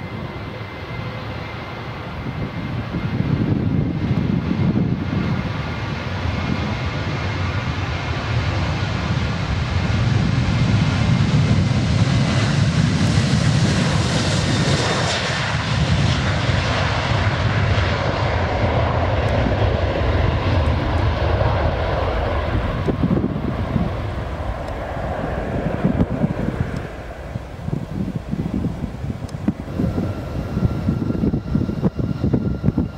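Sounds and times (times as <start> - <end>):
jet engines at takeoff: 0.0 - 32.9
whining fan tones: 18.9 - 32.9.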